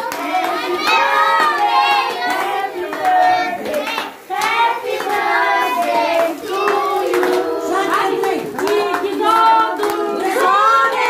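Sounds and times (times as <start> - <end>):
group singing a birthday song: 0.0 - 11.0
hands clapping: 0.0 - 11.0.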